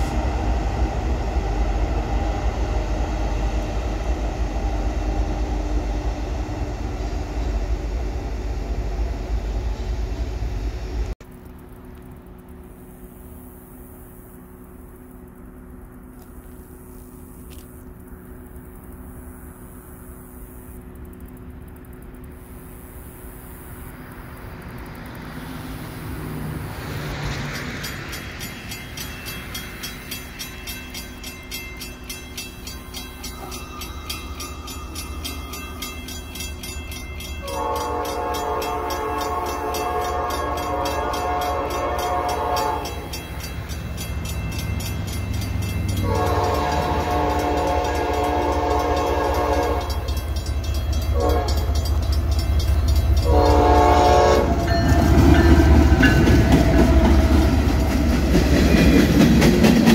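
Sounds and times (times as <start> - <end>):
train rumble: 0.0 - 59.9
locomotive air horn blasts: 37.4 - 43.2, 46.0 - 50.2, 51.1 - 51.9, 53.2 - 55.7.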